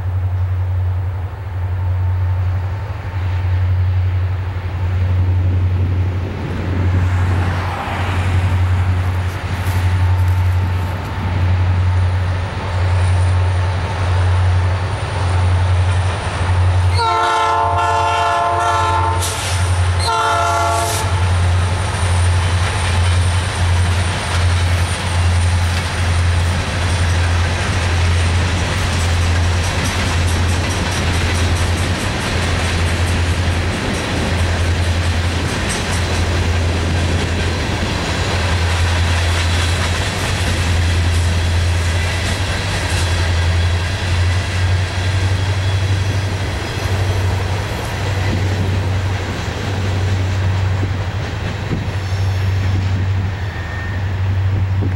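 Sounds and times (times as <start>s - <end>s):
train rumbling by: 0.0s - 54.9s
locomotive horn blasts: 16.9s - 21.4s
wheels clicking over rail joints: 21.3s - 53.2s.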